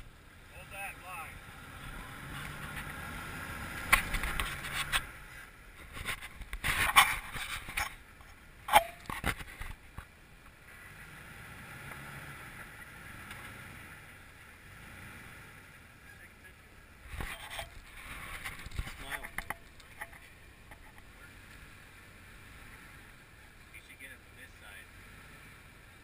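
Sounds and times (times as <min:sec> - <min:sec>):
tyres scraping and knocking on rock: 0:17.1 - 0:21.1.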